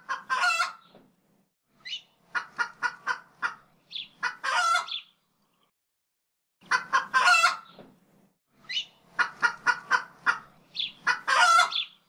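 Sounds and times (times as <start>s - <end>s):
chicken clucking: 0.0s - 1.0s, 1.8s - 5.0s, 6.6s - 7.9s, 8.7s - 12.0s
chicken squawking: 0.1s - 0.8s, 1.9s - 5.1s, 6.6s - 7.7s, 8.7s - 12.0s.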